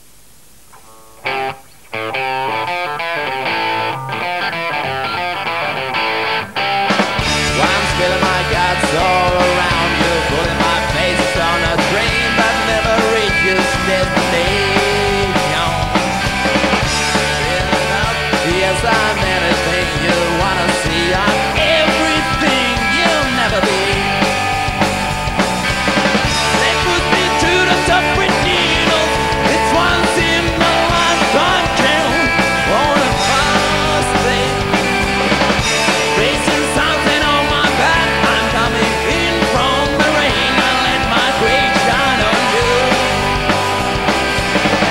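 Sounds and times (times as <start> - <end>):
electric guitar bending notes: 0.8 - 44.9
rock band playing: 0.8 - 44.9.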